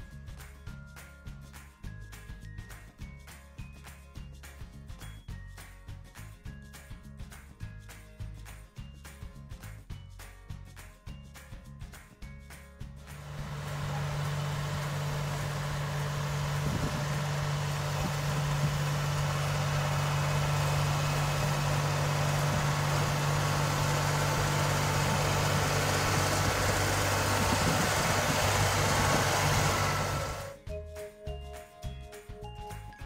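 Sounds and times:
tractor engine running: 0:13.1 - 0:30.6.

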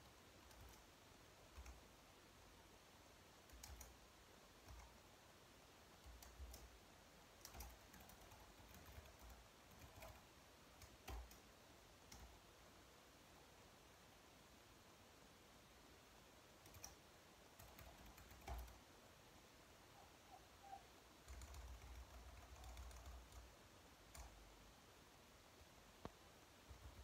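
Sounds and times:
soft keyboard typing: 0:00.4 - 0:01.9, 0:03.4 - 0:05.1, 0:06.0 - 0:12.5, 0:16.6 - 0:18.9, 0:20.0 - 0:24.6, 0:26.0 - 0:27.0.

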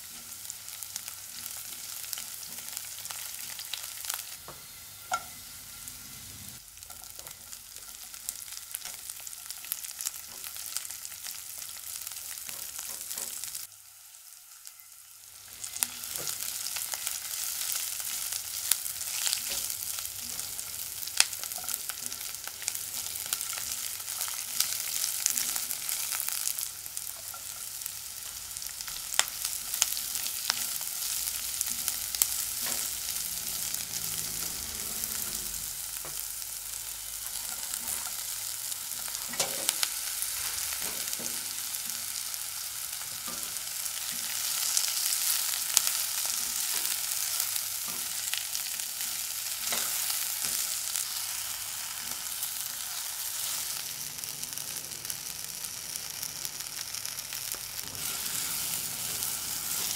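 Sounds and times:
vegetables sizzling in hot oil: 0:00.0 - 0:59.9
spatula scraping a wok: 0:30.0 - 0:36.3, 0:57.8 - 0:59.9.

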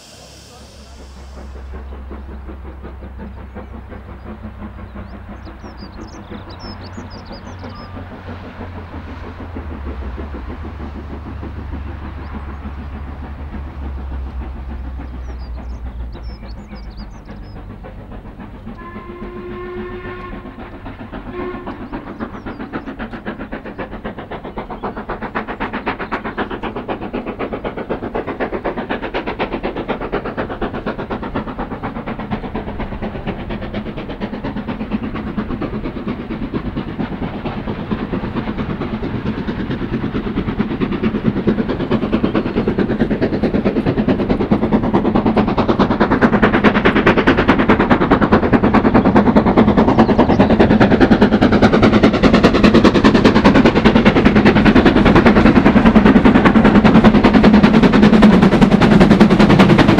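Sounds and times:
locomotive low rumble: 0:00.0 - 0:59.9
rapid steam exhaust beats: 0:00.0 - 0:59.9
bird chirps: 0:15.1 - 0:17.6
steam whistle blasts: 0:18.8 - 0:20.5, 0:21.3 - 0:21.8.

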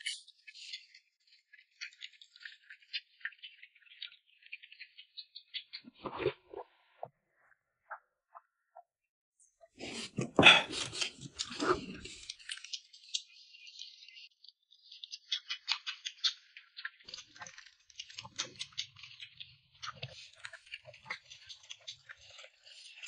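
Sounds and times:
drinking from a glass bowl: 0:09.8 - 0:12.2
wet chewing and mouth clicks: 0:09.8 - 0:13.9, 0:14.8 - 0:23.0.

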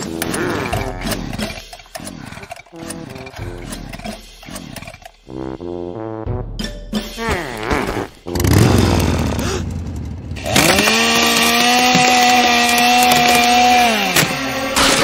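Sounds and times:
chainsaw revving: 0:08.3 - 0:15.0
chainsaw cutting through wall: 0:10.4 - 0:15.0.

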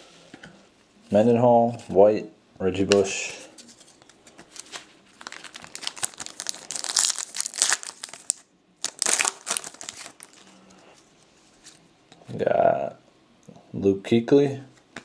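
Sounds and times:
plastic wrapper crinkling: 0:03.6 - 0:10.7.

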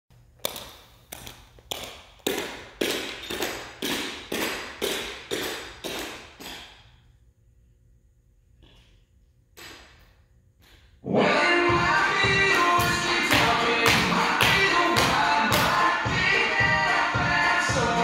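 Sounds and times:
tap shoes on hardwood floor: 0:00.4 - 0:06.6.

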